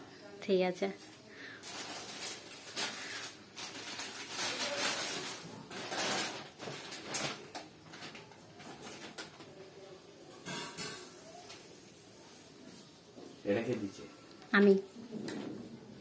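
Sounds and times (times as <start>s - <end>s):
plastic bags rustling and crinkling: 0.8s - 11.8s.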